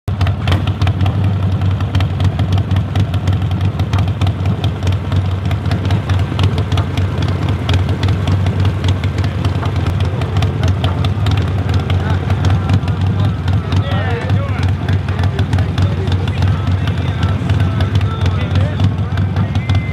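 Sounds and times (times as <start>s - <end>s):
engine idling with ticks: 0.1s - 19.9s.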